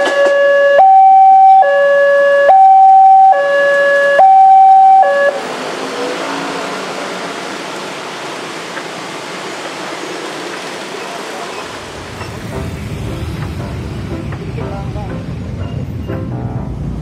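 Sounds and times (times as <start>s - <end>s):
level crossing two-tone alarm: 0.0s - 5.4s
motorcycles and cars passing: 3.6s - 17.0s.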